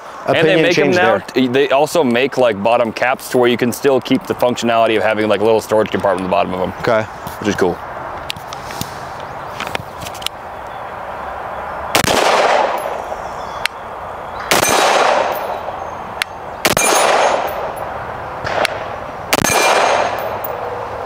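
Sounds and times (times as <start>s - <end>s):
rifle shots with echo: 12.0s - 13.1s, 14.4s - 15.7s, 16.6s - 17.8s, 18.4s - 20.5s.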